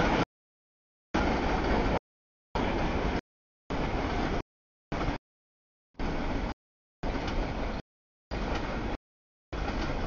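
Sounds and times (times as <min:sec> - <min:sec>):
steady rumbling noise: 0:00.0 - 0:00.3, 0:01.2 - 0:02.0, 0:02.6 - 0:05.2, 0:06.0 - 0:10.0.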